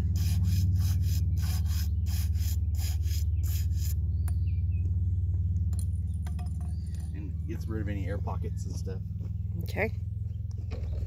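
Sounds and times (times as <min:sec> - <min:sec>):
rhythmic rasping swish: 0:00.0 - 0:04.0
concrete mixer humming: 0:00.0 - 0:11.0.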